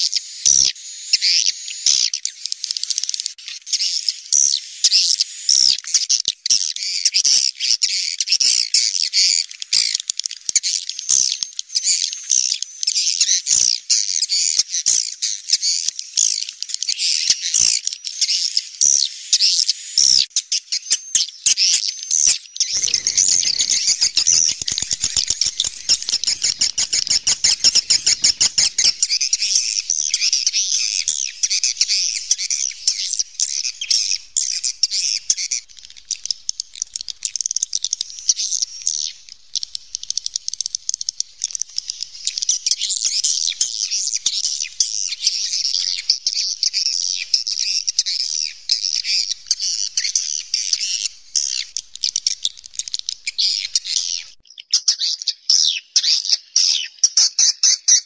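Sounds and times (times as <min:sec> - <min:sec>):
birds twittering: 0:20.8 - 0:58.0
fast run of clicks: 0:22.8 - 0:31.2.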